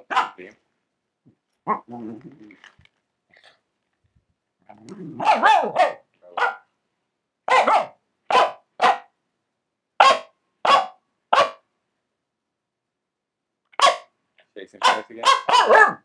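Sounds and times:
dog barking: 0:00.0 - 0:00.5, 0:05.2 - 0:06.7, 0:07.5 - 0:09.2, 0:10.0 - 0:11.6, 0:13.8 - 0:14.1, 0:14.8 - 0:16.0.

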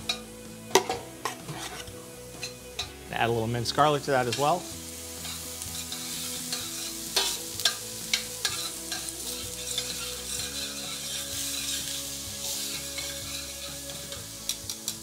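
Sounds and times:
onions sizzling in butter: 0:00.0 - 0:15.0
metal tongs clicking against pan: 0:12.7 - 0:15.0.

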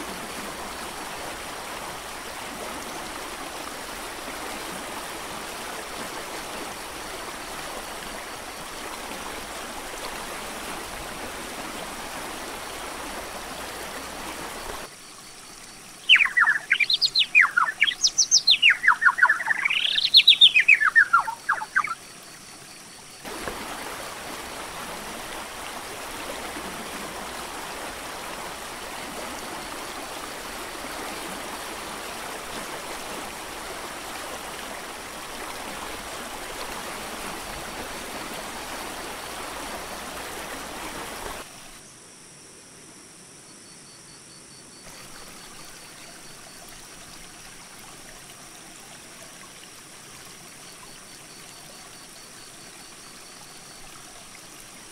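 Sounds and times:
mountain creek rushing: 0:00.0 - 0:14.9, 0:15.9 - 0:22.6, 0:23.2 - 0:41.8, 0:44.9 - 0:54.9
fast songbird song: 0:16.0 - 0:22.0.

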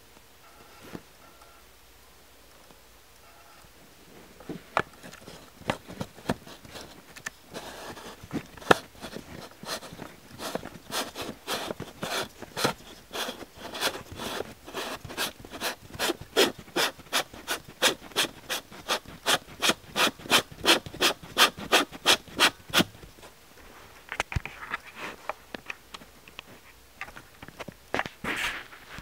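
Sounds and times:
hand rubbing a surface: 0:04.5 - 0:23.1.

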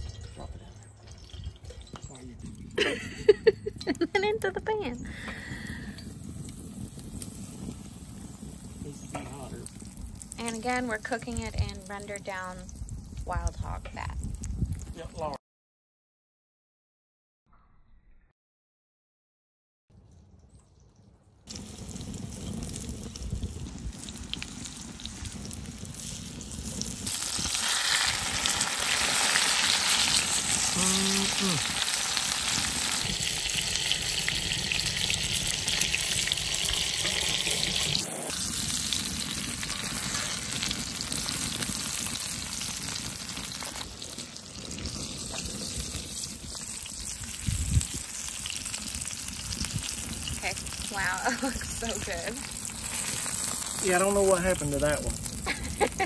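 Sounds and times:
cutlets sizzling in a skillet: 0:21.5 - 0:56.0.

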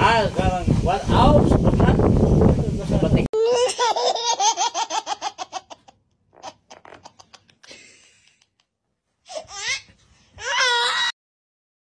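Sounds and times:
person laughing: 0:06.8 - 0:08.7.

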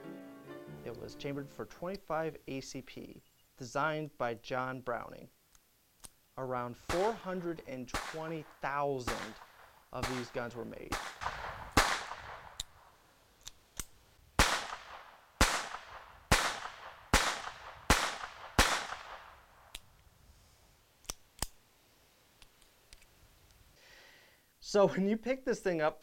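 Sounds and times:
pistol handling clicks: 0:05.5 - 0:06.2, 0:11.9 - 0:12.8, 0:13.4 - 0:14.0, 0:15.8 - 0:20.0, 0:21.0 - 0:21.6
pistol shots: 0:06.8 - 0:12.8, 0:14.4 - 0:19.4.

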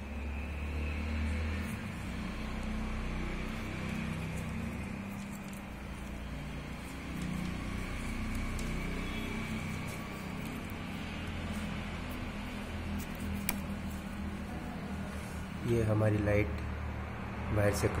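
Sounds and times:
low mechanical hum and rumble: 0:00.0 - 0:18.0
electrical tape crackling: 0:01.7 - 0:15.6.

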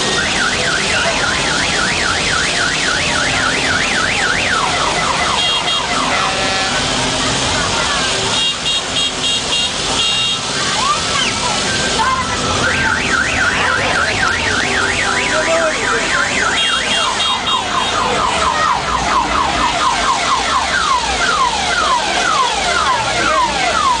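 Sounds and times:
electronic siren cycling tones: 0:11.2 - 0:24.0.

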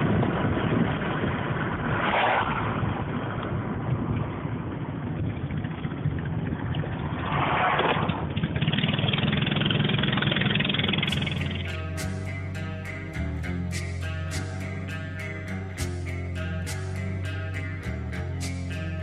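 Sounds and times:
car engine and road noise: 0:00.0 - 0:19.0
music: 0:11.1 - 0:19.0.

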